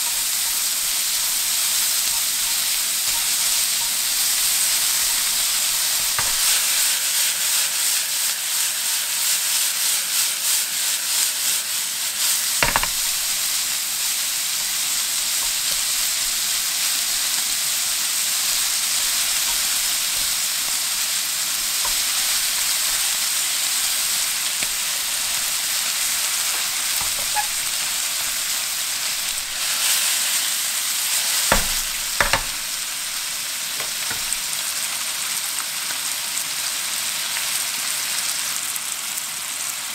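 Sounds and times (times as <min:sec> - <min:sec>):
chopsticks clicking against pan: 0:00.0 - 0:06.8, 0:12.6 - 0:29.6
meat sizzling in a frying pan: 0:00.0 - 0:39.9.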